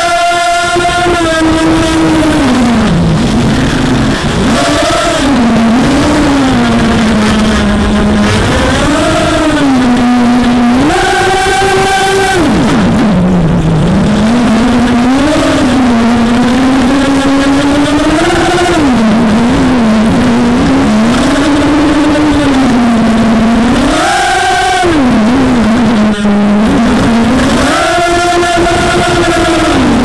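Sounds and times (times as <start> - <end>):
quadcopter motors whining: 0.0 - 22.4.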